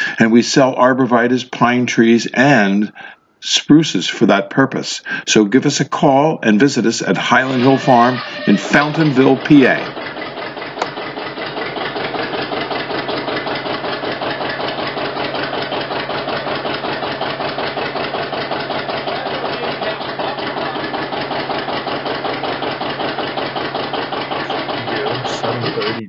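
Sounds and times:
tractor engine running: 7.2s - 26.0s.

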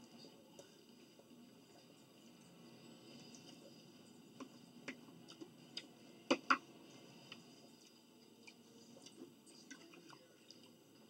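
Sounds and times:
clicks and taps of people eating: 4.4s - 6.7s, 7.3s - 10.8s.

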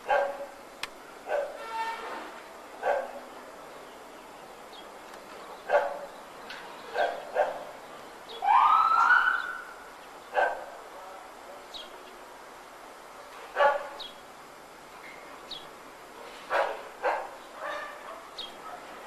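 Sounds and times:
dog barking: 0.1s - 0.6s, 1.2s - 1.6s, 2.8s - 3.3s, 5.7s - 6.1s, 6.9s - 7.7s, 10.3s - 10.8s, 13.5s - 14.0s, 16.5s - 19.0s.

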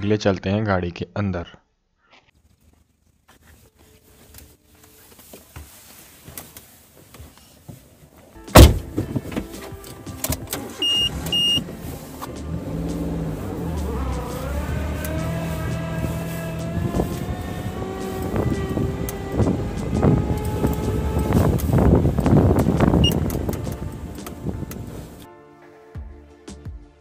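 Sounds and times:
car door shutting: 8.5s - 12.7s, 16.8s - 25.2s
car engine starting and running: 8.5s - 25.3s
short beeps: 10.8s - 11.6s.

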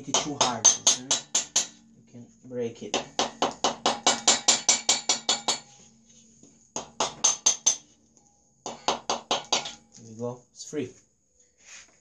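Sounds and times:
rubber mallet tapping metal: 0.0s - 1.8s, 2.9s - 5.7s, 6.8s - 7.8s, 8.6s - 9.9s.

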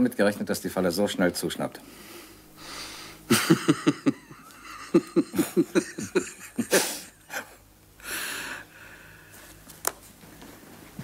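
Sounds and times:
men laughing: 3.3s - 7.7s.

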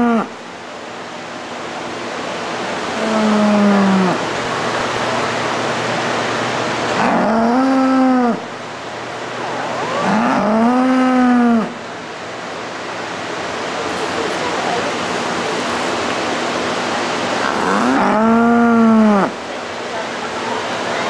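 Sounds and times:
steady background hiss: 0.0s - 21.0s
cows mooing: 7.0s - 8.4s, 9.9s - 11.8s, 17.4s - 19.4s.

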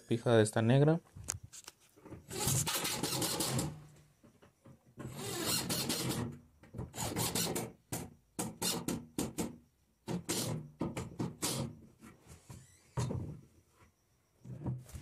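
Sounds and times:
screws grinding into wood: 2.3s - 3.8s, 5.0s - 7.8s, 8.4s - 9.0s, 10.1s - 10.6s, 11.3s - 11.7s.

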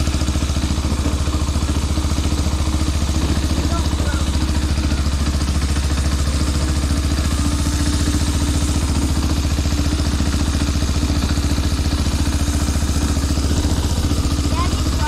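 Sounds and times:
small engine running steadily: 0.0s - 15.0s.

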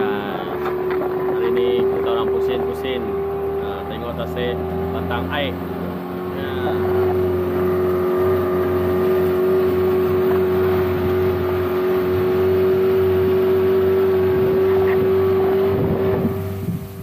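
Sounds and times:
boat outboard motor running: 0.0s - 17.0s.

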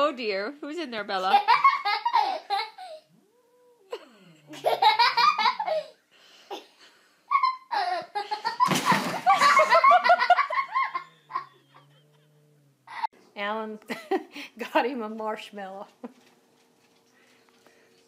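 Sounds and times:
people laughing hard: 9.2s - 12.1s.

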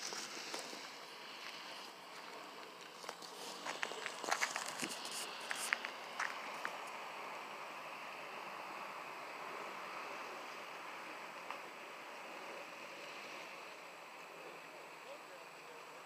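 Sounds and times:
steady outdoor hiss: 0.0s - 16.0s
sharp clicks and rustles: 2.6s - 7.0s.

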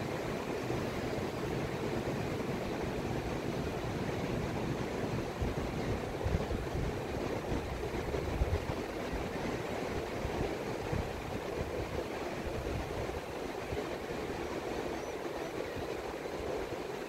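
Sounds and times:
waves breaking on a beach: 0.0s - 17.0s
wind buffeting microphone: 2.3s - 17.0s.

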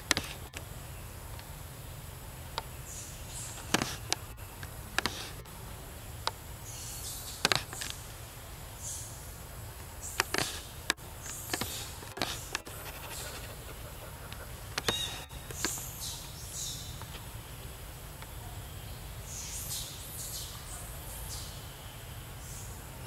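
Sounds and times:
sharp clicks: 0.0s - 0.7s, 3.4s - 5.5s, 7.3s - 8.1s, 9.8s - 13.6s, 14.3s - 16.3s.

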